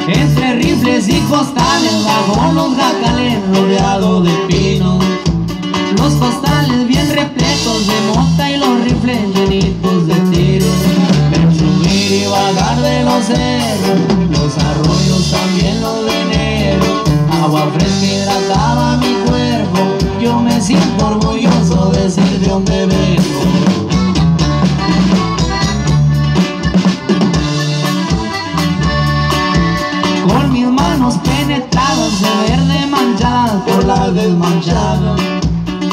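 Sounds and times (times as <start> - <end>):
accordion: 0.0 - 35.9
bass: 0.0 - 35.9
drum kit beat: 0.0 - 35.9
electric guitar: 0.0 - 35.9.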